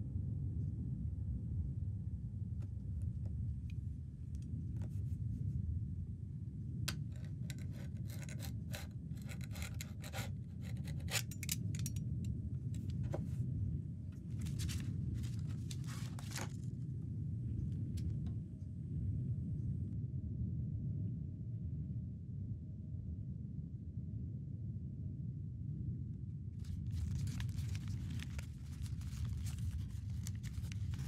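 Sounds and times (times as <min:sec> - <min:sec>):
low steady rumble: 0:00.0 - 0:31.0
blade scraping packing tape: 0:06.9 - 0:12.0, 0:26.6 - 0:31.0.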